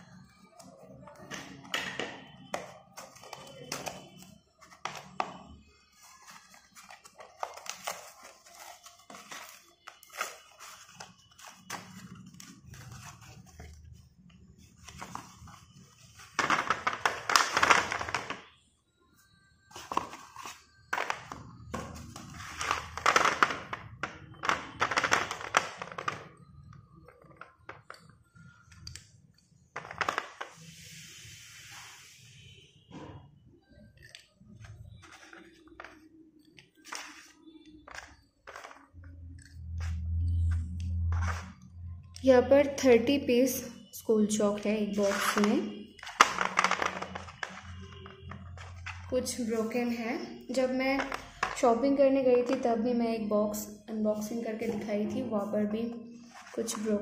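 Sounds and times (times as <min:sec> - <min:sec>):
chalk sticks clattering into plastic bowl: 0:24.4 - 0:26.3, 0:36.8 - 0:41.4, 0:45.0 - 0:49.0.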